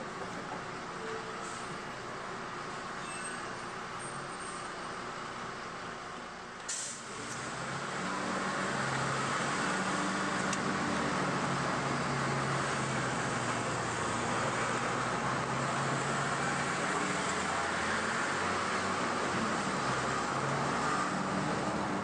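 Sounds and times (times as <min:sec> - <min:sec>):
bus diesel engine: 0:00.0 - 0:22.0
air brakes hissing: 0:01.4 - 0:01.8, 0:06.7 - 0:07.1.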